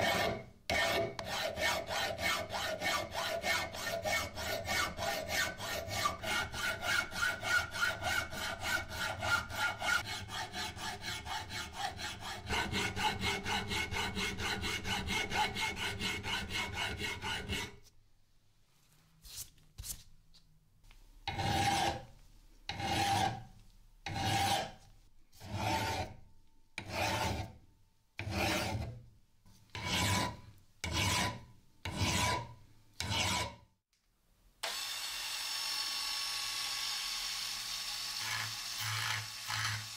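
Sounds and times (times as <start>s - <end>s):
file rasping on steel: 0.0s - 17.8s, 21.3s - 22.1s, 22.7s - 23.5s, 24.1s - 24.8s, 25.4s - 26.2s, 26.8s - 27.6s, 28.2s - 29.0s, 29.7s - 33.7s.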